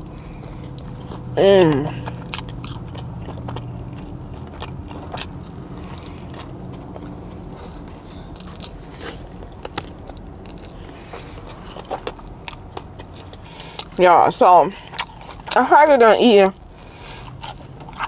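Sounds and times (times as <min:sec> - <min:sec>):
woman chewing: 0:00.0 - 0:14.0, 0:14.8 - 0:15.6, 0:16.5 - 0:18.0
low hum: 0:00.0 - 0:15.5.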